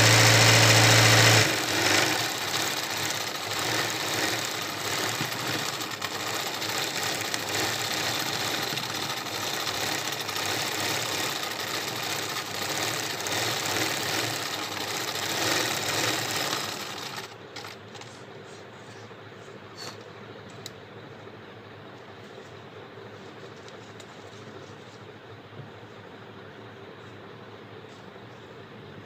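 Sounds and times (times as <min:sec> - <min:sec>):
sewing machine running: 0:00.0 - 0:17.8.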